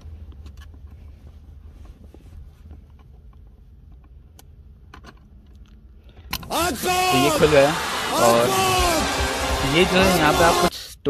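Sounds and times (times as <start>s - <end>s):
low steady rumble: 0.0s - 6.3s.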